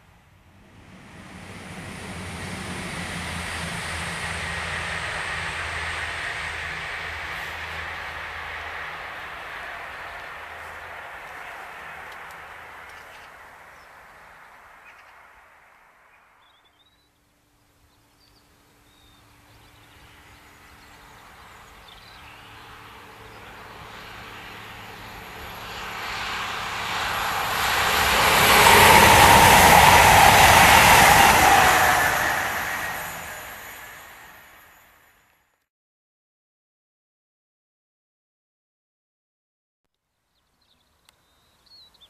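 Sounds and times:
diesel train passing: 0.0s - 16.1s, 17.4s - 35.2s
wheels on rails: 0.6s - 14.8s, 18.9s - 34.8s.

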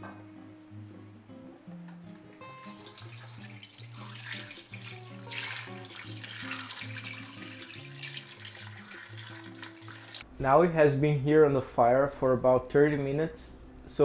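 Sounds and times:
background music: 0.0s - 10.8s
water pouring into a pot: 2.6s - 10.2s.

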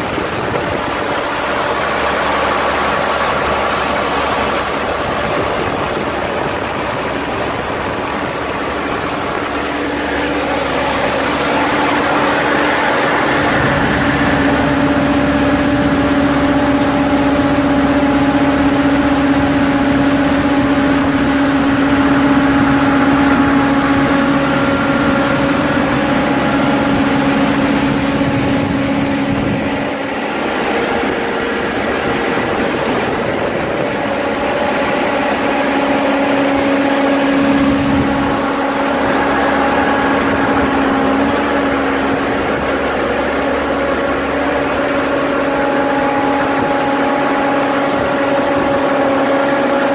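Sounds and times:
diesel engine running: 0.0s - 49.9s.

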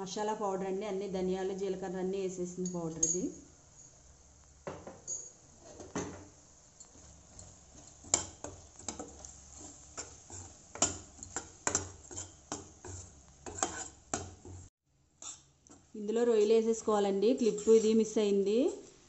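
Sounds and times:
spoon scraping a steel pan: 6.8s - 14.6s, 15.2s - 15.8s, 17.4s - 18.1s.

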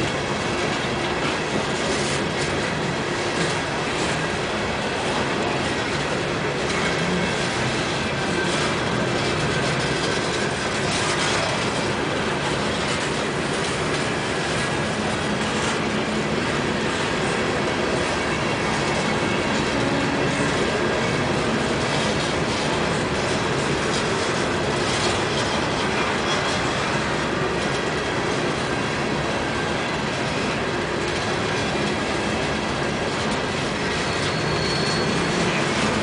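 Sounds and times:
freight train wheels clattering: 0.0s - 36.0s
thin wheel squeal: 34.0s - 35.5s.

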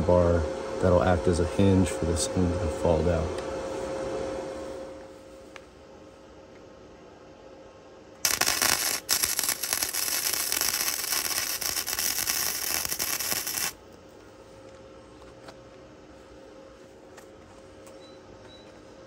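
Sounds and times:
arc welding crackle: 8.2s - 13.8s.

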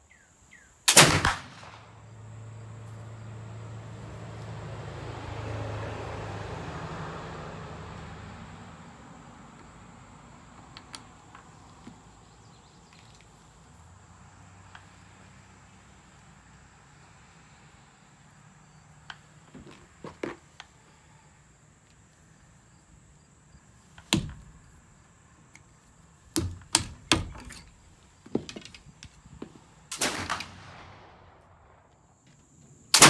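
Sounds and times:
gunshots cracking: 0.9s - 2.0s, 29.9s - 31.8s
rifle loading clicks and taps: 10.6s - 12.0s.

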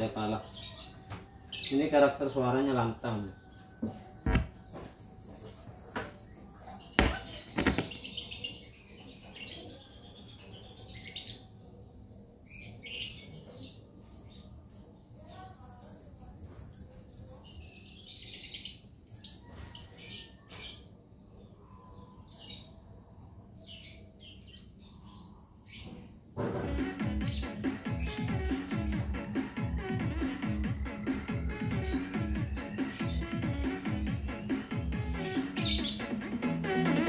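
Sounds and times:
bird chirping and trilling: 0.0s - 26.3s, 30.4s - 37.0s
sharp knocks: 3.8s - 4.6s.

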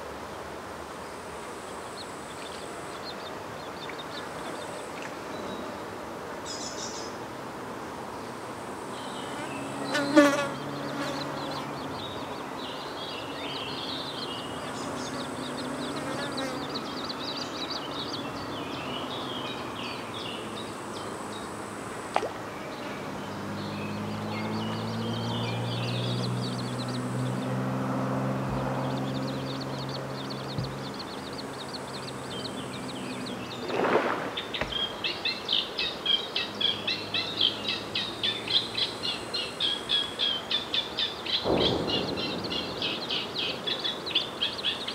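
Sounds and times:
insect buzz droning: 0.8s - 44.9s
high bird chirps: 34.4s - 44.9s.

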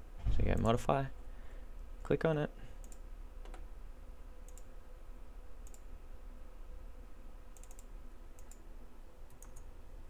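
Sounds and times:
low steady hum: 0.0s - 10.0s
computer mouse clicking: 2.8s - 3.7s, 4.4s - 4.7s, 5.6s - 5.9s, 7.5s - 8.6s, 9.3s - 9.7s.

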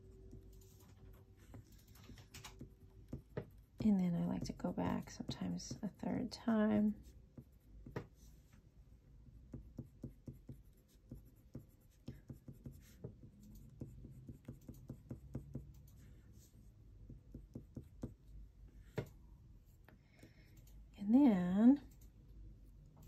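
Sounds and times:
pencil scratching on paper: 6.9s - 8.5s, 9.5s - 18.2s.

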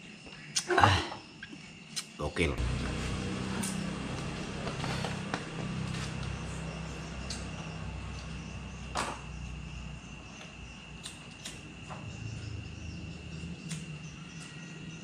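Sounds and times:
high-pitched cricket trill: 0.0s - 15.0s
low rumble: 2.6s - 9.8s.

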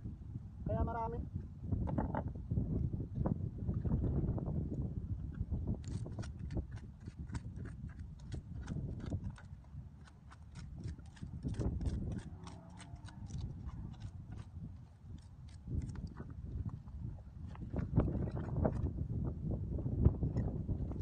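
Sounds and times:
clicks of shells and stones: 5.8s - 14.5s, 15.1s - 16.8s.

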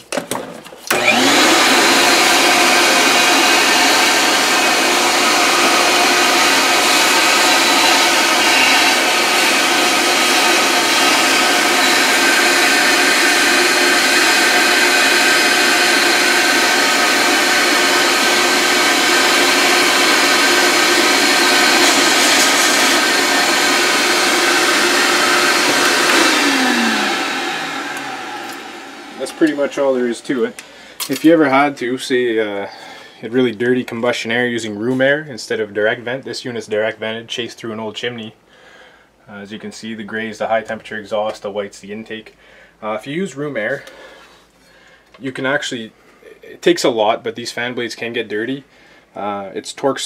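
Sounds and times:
shop vac whining: 0.0s - 33.0s
vacuum nozzle sucking debris: 0.9s - 30.8s.

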